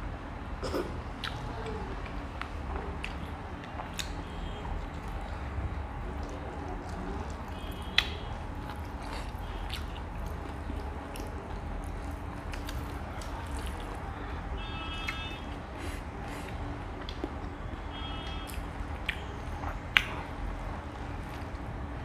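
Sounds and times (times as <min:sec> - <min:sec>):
chewing: 0:00.6 - 0:04.2, 0:04.8 - 0:14.0, 0:15.0 - 0:17.6, 0:18.2 - 0:20.4
wet squishes of fingers mixing food: 0:01.2 - 0:17.6.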